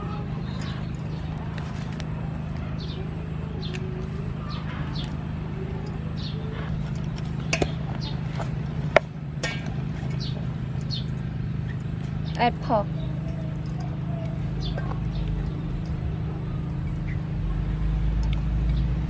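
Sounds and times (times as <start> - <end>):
steady low hum: 0.0 - 19.0
bird chirps: 2.6 - 6.8, 10.1 - 18.9.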